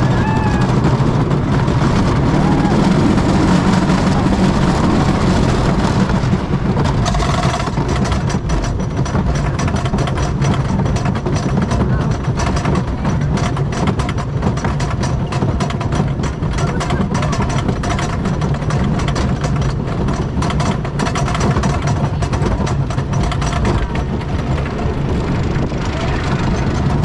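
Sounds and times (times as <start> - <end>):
rushing air: 0.0 - 8.2, 23.8 - 27.0
lift chain drone: 0.0 - 27.0
ratchet clacking: 0.0 - 27.0
roller coaster track noise: 0.0 - 27.0.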